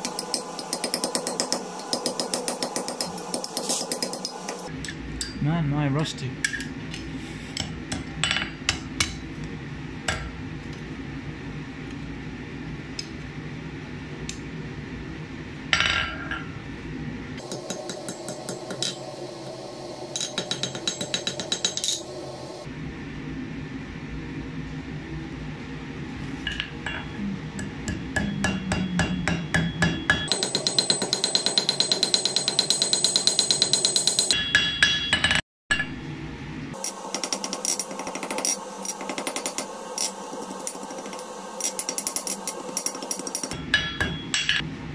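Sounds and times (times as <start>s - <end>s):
hammer striking steel on anvil: 0.0s - 5.4s, 17.4s - 19.0s, 20.2s - 22.1s, 26.5s - 36.0s, 36.8s - 44.7s.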